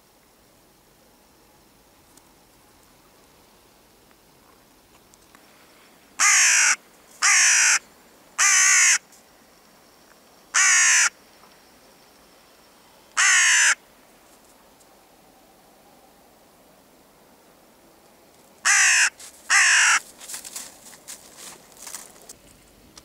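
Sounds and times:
crow cawing: 0:06.2 - 0:07.8, 0:08.4 - 0:09.0, 0:10.5 - 0:11.2, 0:13.2 - 0:13.8, 0:18.6 - 0:20.1.

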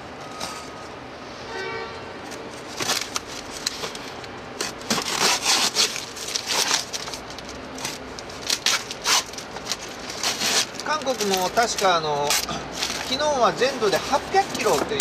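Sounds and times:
styrofoam packaging crackling and rustling: 0:02.3 - 0:15.0
polystyrene squeaking: 0:04.6 - 0:15.0.

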